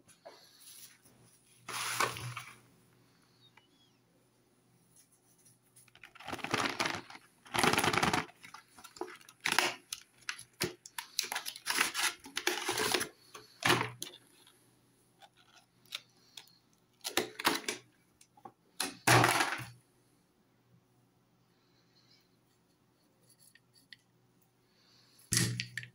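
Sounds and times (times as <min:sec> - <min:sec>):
wax crayons clicking together: 0:05.9 - 0:13.6.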